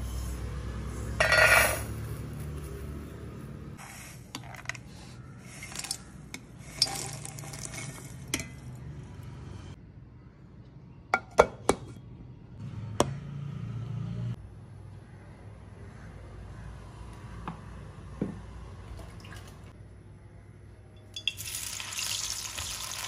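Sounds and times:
metal spatula scraping nuts: 0:01.2 - 0:01.9, 0:03.8 - 0:08.7.

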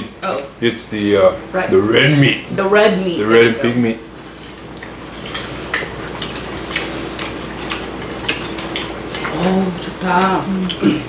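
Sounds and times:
utensils clinking against bowls: 0:04.4 - 0:11.0.

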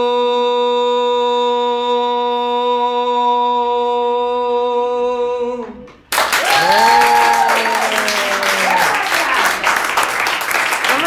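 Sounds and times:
applause and cheering: 0:06.1 - 0:11.0.

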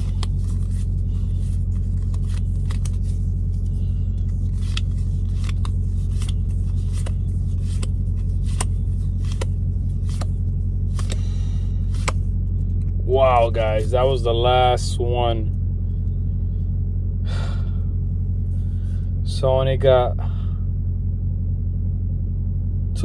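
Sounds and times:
truck engine idling: 0:00.0 - 0:23.0
trading cards flicked by hand: 0:04.5 - 0:11.3, 0:11.9 - 0:12.2.

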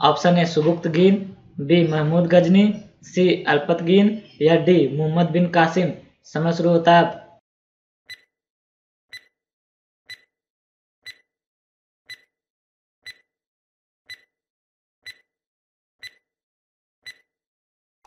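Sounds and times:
countdown timer ticks: 0:08.1 - 0:08.3, 0:09.1 - 0:09.3, 0:10.1 - 0:10.3, 0:12.1 - 0:12.3, 0:13.1 - 0:13.3, 0:14.1 - 0:14.3, 0:15.1 - 0:15.3, 0:16.0 - 0:16.2, 0:17.1 - 0:17.3.

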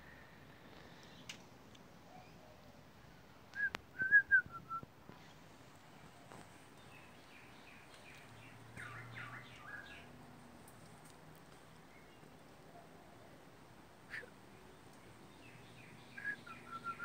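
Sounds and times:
whistled chirps: 0:03.5 - 0:04.8, 0:14.1 - 0:14.3, 0:16.2 - 0:17.0.

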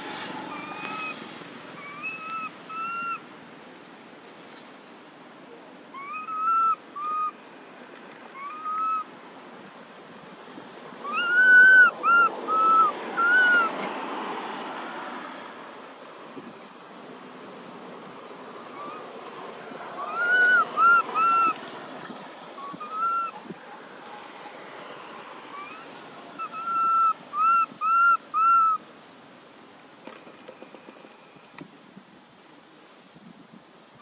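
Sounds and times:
baby monkey coo calls: 0:11.0 - 0:13.7, 0:20.0 - 0:21.6, 0:22.6 - 0:23.4, 0:25.6 - 0:28.8.

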